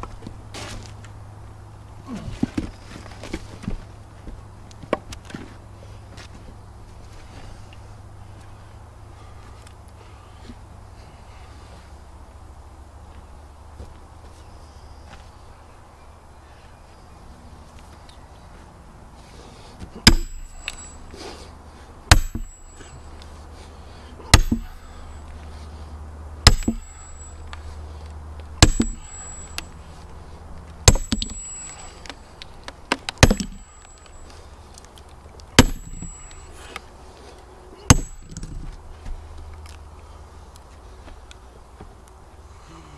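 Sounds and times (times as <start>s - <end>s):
sledgehammer clanging on steel wedge: 20.0s - 21.1s, 22.1s - 23.1s, 24.3s - 25.1s, 26.4s - 27.6s, 28.6s - 29.8s, 30.8s - 32.2s, 32.9s - 34.4s, 35.6s - 36.6s, 37.8s - 38.7s.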